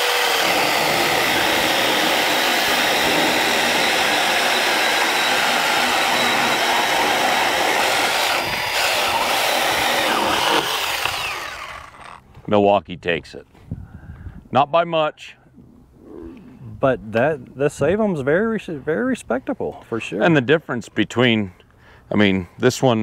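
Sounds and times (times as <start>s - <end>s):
electric chainsaws cutting log: 0.0s - 12.2s.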